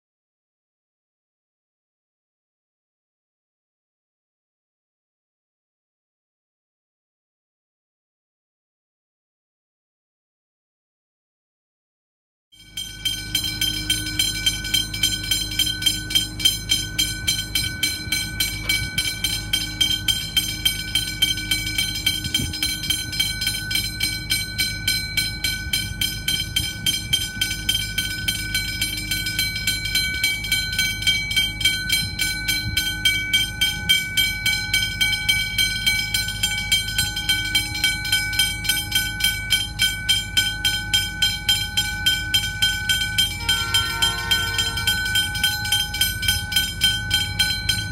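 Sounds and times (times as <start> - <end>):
level crossing warning bell: 12.6 - 47.9
low rumble of train: 12.6 - 47.9.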